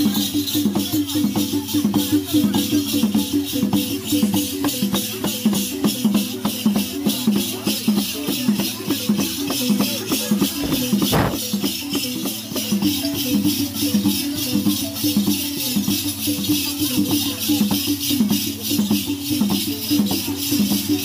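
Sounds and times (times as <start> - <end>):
balafons playing fast notes: 2.6 - 17.2
rattles shaking: 9.1 - 12.2.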